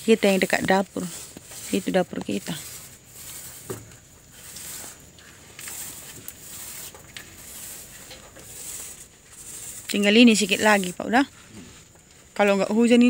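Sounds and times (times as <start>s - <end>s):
paint roller rasping on cement: 0.0s - 11.9s.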